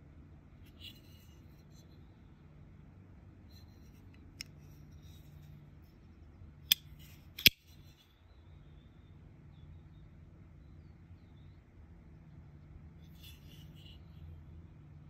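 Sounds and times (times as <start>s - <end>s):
folding knife clicks: 6.7s - 7.6s.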